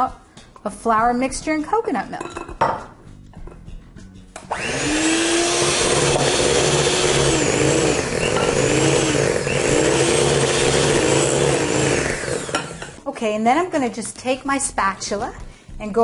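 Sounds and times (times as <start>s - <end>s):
electric hand mixer whirring: 4.5s - 13.0s.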